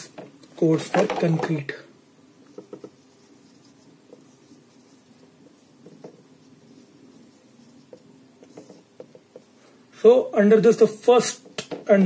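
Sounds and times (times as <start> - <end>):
marker pen scratching on whiteboard: 2.4 - 9.7
soft squeaks and taps of pen: 2.5 - 3.0, 7.8 - 9.5.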